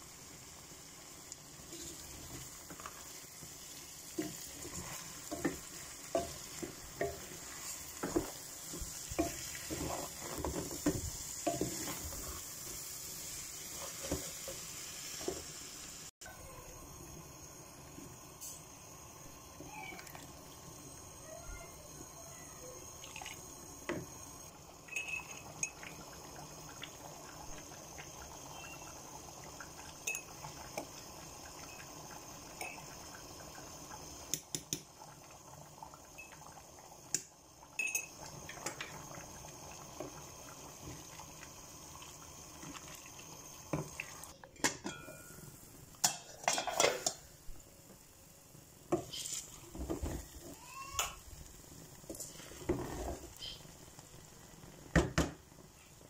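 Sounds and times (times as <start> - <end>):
wet rice and broth stirring: 1.5 - 12.5
spoon knocking and scraping pot: 4.2 - 12.2, 13.7 - 14.6.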